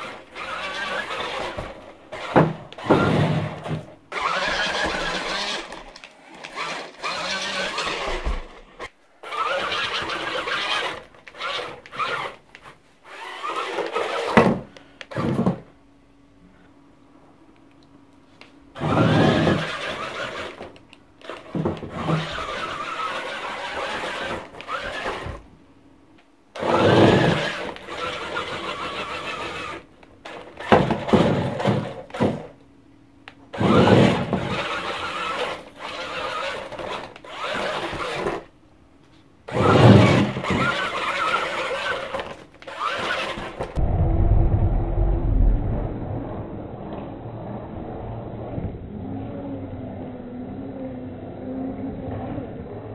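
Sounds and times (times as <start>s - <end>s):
small electric motor whirring: 0.0s - 14.4s, 18.8s - 25.4s, 26.6s - 32.2s, 33.5s - 38.4s, 39.5s - 43.8s.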